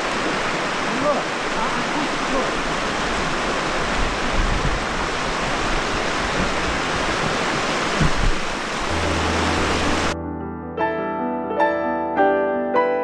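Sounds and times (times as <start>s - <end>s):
river water rushing: 0.0s - 10.2s.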